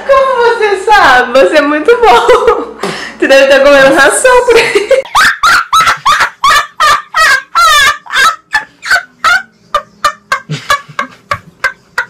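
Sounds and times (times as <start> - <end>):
boy laughing hard: 5.0 - 12.0.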